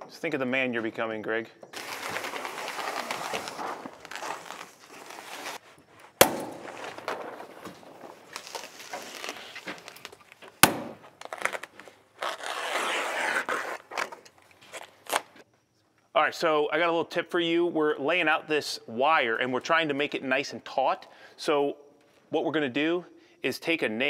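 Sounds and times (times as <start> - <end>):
plastic wrap rustling and crinkling: 1.8 - 15.4
sharp knocks: 6.2 - 7.2, 10.6 - 11.1.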